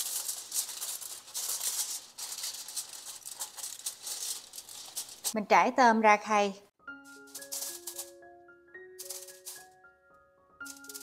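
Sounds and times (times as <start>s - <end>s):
aluminium foil crinkling: 0.0s - 5.4s, 7.1s - 8.2s, 9.0s - 9.7s, 10.6s - 11.0s.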